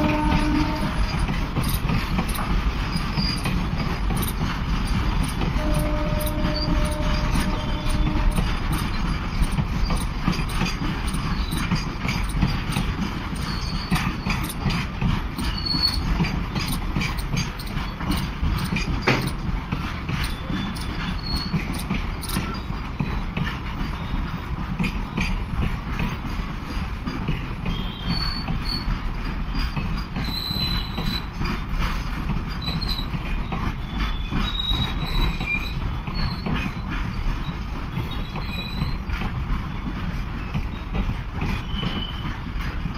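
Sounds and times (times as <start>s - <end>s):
train rumble: 0.0s - 42.9s
wheels clattering over rail joints: 0.0s - 42.9s
faint steady squeal: 41.6s - 42.3s.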